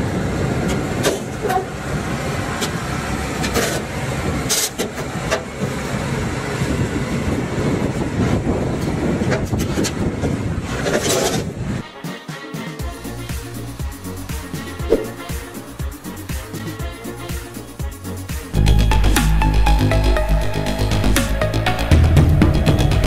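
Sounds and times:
tractor engine under load: 0.0s - 11.8s
steel tracks clanking: 0.0s - 23.0s.

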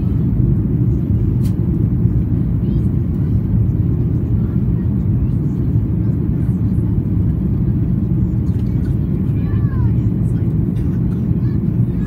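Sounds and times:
airplane cabin drone: 0.0s - 12.0s.

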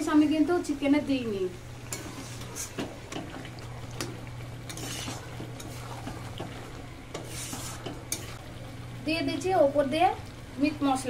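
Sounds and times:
steady low hum: 0.0s - 11.0s
spatula scraping metal pan: 1.8s - 3.3s, 4.6s - 8.4s.

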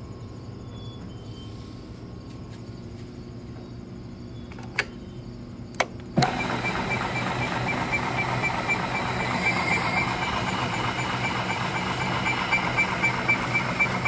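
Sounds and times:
machine humming: 5.8s - 14.0s.

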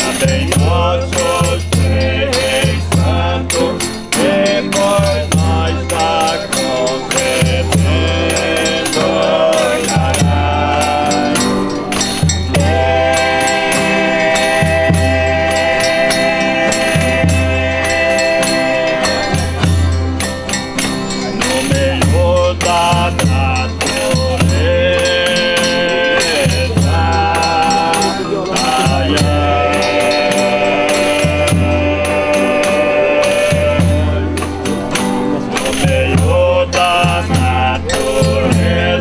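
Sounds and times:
tambourine jingling: 0.0s - 39.0s
voices singing held notes: 0.0s - 39.0s.

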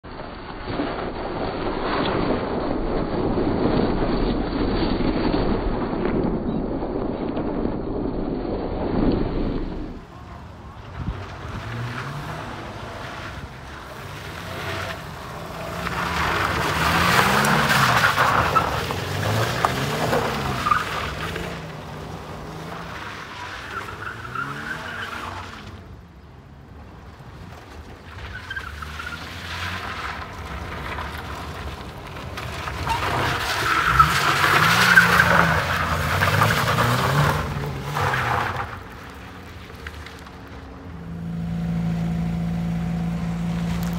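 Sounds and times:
gravel scattering: 0.0s - 43.9s
tyres skidding on gravel: 8.8s - 43.9s
rally car engine revving: 9.1s - 25.8s, 28.6s - 43.9s.

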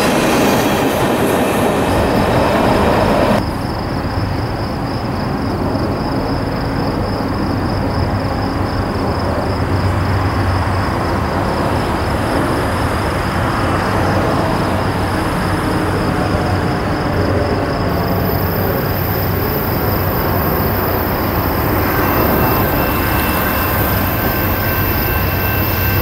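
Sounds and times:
high-pitched whine: 17.8s - 26.0s.

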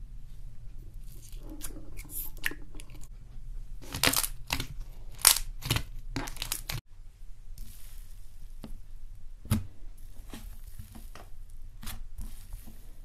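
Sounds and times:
foam slime crackling: 7.6s - 8.6s.

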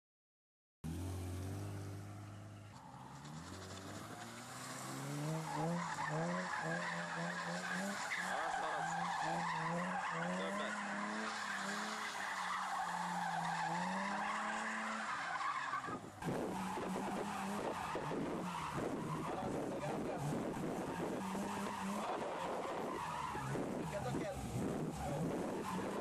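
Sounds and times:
car engine revving: 0.8s - 26.0s
tyre squeal: 5.3s - 20.0s.

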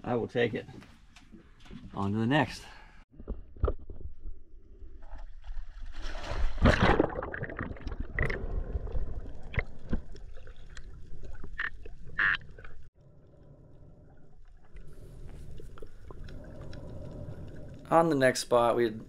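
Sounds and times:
underwater bubbling: 6.6s - 18.2s
underwater clicks and crackles: 6.6s - 19.0s.

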